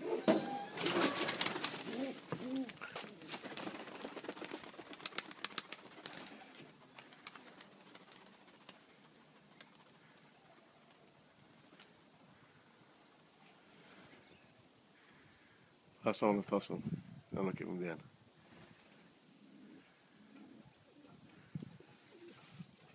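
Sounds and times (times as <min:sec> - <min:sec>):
pigeon coos: 0:00.0 - 0:03.3, 0:19.3 - 0:22.9
pigeon wingbeats clattering: 0:00.8 - 0:11.9.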